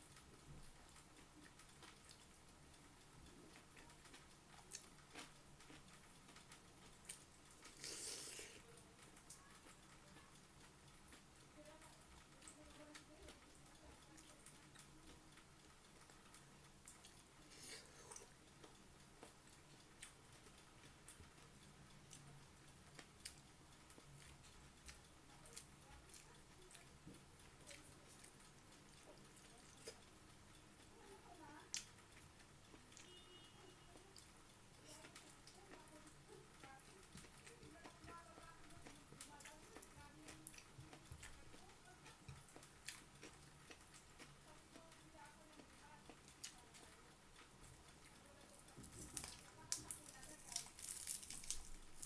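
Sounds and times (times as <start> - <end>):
chewing with wet mouth clicks: 3.3 - 10.2, 16.0 - 21.4, 22.0 - 30.3, 31.6 - 52.0.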